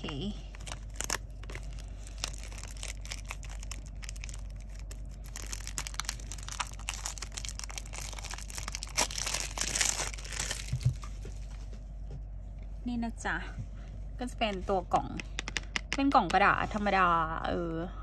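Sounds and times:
cellophane crackling: 0.0 - 11.4.

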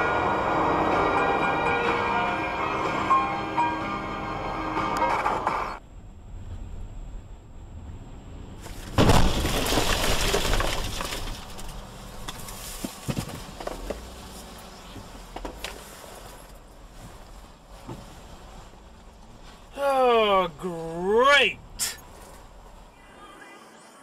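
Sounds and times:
loud crash with breaking: 8.7 - 11.8.

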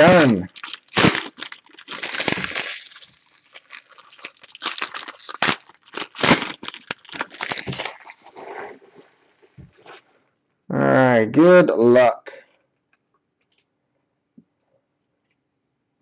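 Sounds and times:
foil wrappers crinkling: 0.0 - 8.4.

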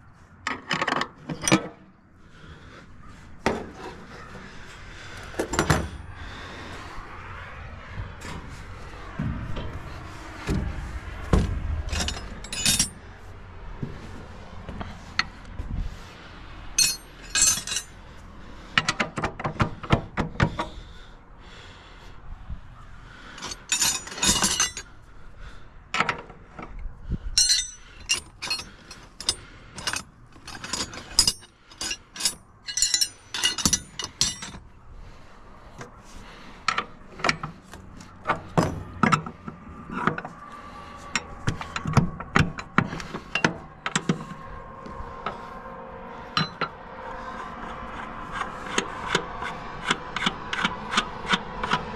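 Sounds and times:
wrench and metal parts clinking: 0.4 - 1.8, 11.9 - 13.0, 16.8 - 18.0, 23.4 - 24.9, 27.3 - 34.6, 46.3 - 46.7
steps on steel ladder: 8.0 - 13.0.

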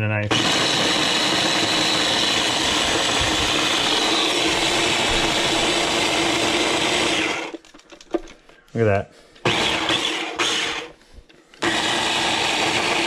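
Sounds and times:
electric food chopper running: 0.3 - 7.6, 9.4 - 11.0, 11.6 - 13.0.

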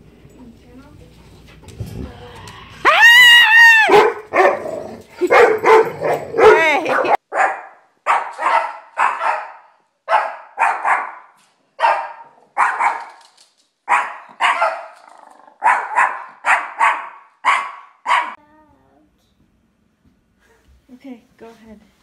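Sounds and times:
small dog barking: 3.8 - 13.2, 13.9 - 15.0, 15.6 - 18.4.

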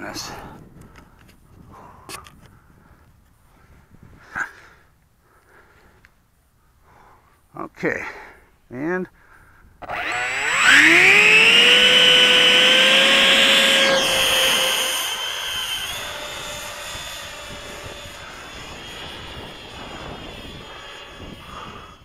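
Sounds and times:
electric ducted fan whine: 9.8 - 22.0.

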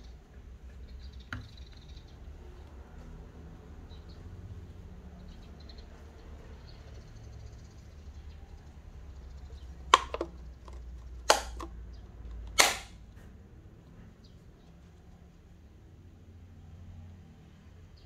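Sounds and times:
plastic cup clacking: 9.9 - 13.0.

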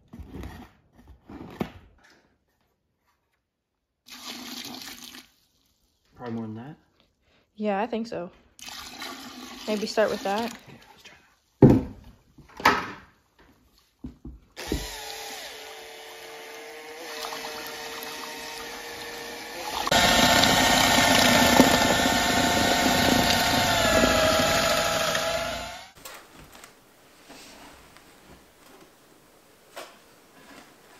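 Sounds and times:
electric drill mixing mortar: 14.6 - 26.0.

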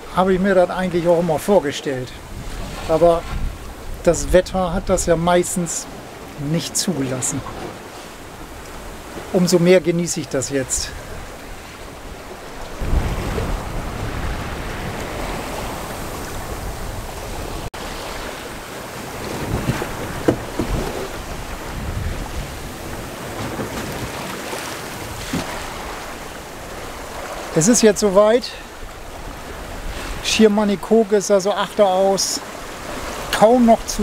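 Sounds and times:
water rushing along hull: 0.0 - 34.0
wind buffeting microphone: 2.1 - 6.4, 10.7 - 27.5.

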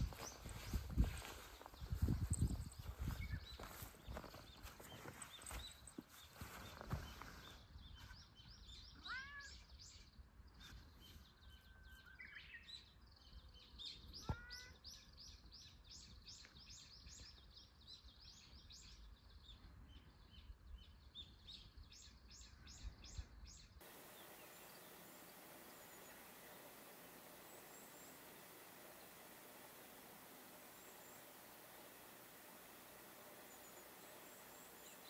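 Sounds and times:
small birds chirping: 0.0 - 35.0
steady hiss: 23.8 - 35.0.

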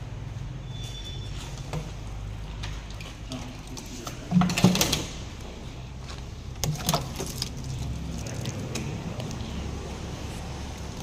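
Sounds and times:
liquid splashing into plastic drum: 6.6 - 8.8.

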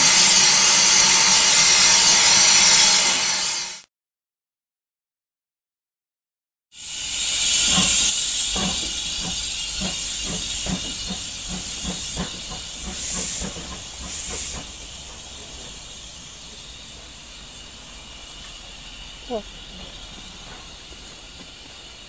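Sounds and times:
steam locomotive hissing: 0.0 - 3.8, 6.8 - 22.0
locomotive chuffing: 6.8 - 22.0.

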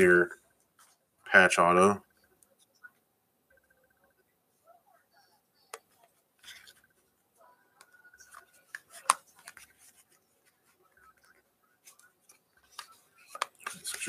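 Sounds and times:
trading cards rustling: 6.0 - 14.0.

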